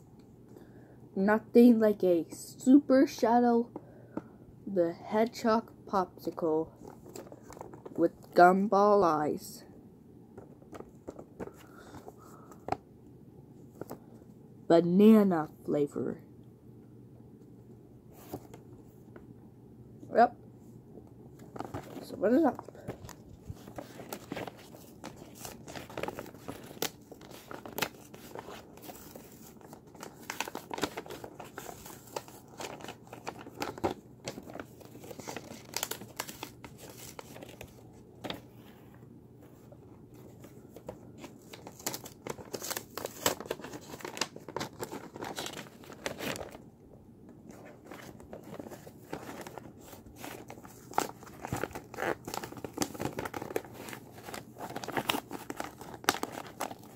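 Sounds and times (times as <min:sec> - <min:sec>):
paper crinkling and rustling: 0:06.8 - 0:08.0, 0:21.4 - 0:46.6, 0:47.4 - 0:56.9.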